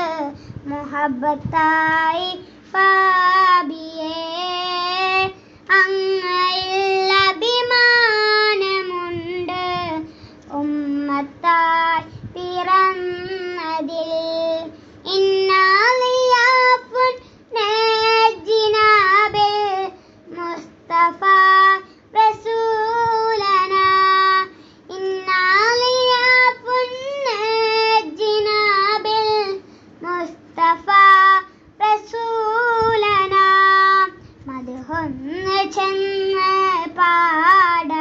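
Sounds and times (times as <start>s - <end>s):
boy singing unaccompanied: 0.0s - 38.0s
singer breathing: 0.3s - 0.7s, 5.4s - 5.7s, 10.0s - 10.5s, 14.7s - 15.0s, 17.2s - 17.5s, 19.9s - 20.3s, 24.5s - 24.9s, 29.6s - 30.0s, 34.2s - 34.5s.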